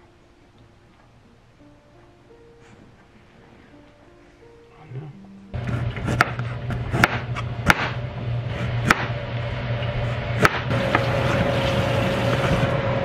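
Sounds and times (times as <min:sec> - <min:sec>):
steady low hum: 0:05.4 - 0:13.0.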